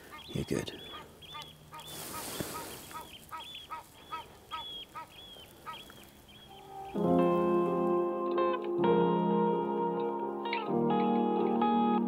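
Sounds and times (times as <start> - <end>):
waterbird calling: 0.0 - 7.0
guitar music: 6.4 - 12.0.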